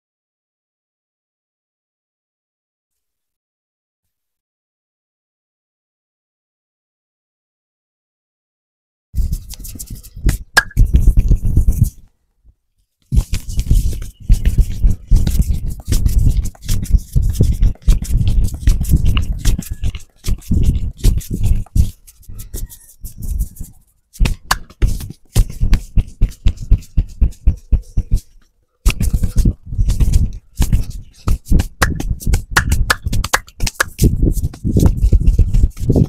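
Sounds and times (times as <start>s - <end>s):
hands tapping on scalp: 9.5s - 11.9s, 23.2s - 28.3s, 28.9s - 36.0s.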